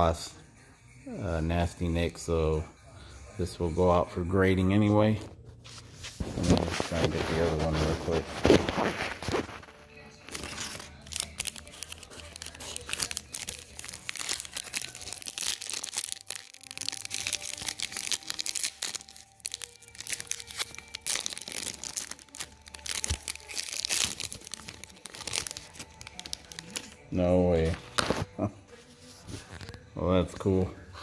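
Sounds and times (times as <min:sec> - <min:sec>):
paper wrapper tearing and crinkling: 0:06.0 - 0:27.0, 0:27.6 - 0:28.3.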